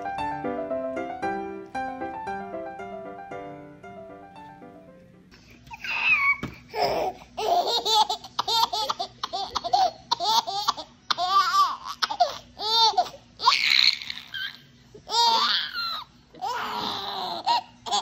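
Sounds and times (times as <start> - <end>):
baby laughing: 5.6 - 18.0.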